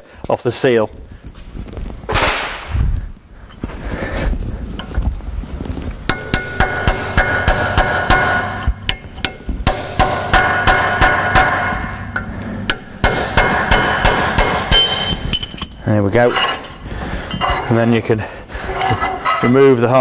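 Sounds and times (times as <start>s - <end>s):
hammer striking metal chisel: 6.1s - 16.7s.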